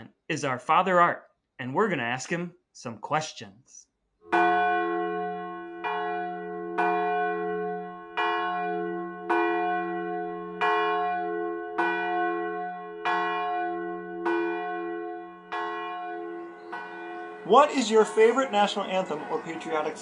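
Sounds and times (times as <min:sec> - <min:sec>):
church bell tolling: 0:04.3 - 0:20.0.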